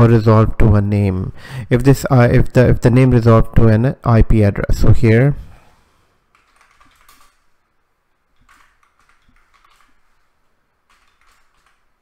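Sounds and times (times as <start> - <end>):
keyboard typing clicks: 6.3 - 7.4, 8.4 - 10.2, 10.9 - 12.0.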